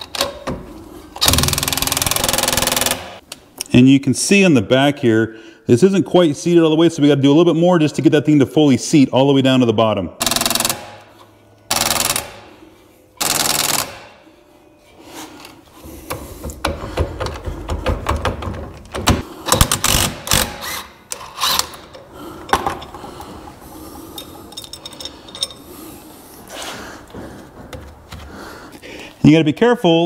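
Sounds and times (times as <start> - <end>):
impact wrench hammering: 1.2 - 3.2, 10.2 - 11.1, 11.7 - 12.5, 13.2 - 14.1.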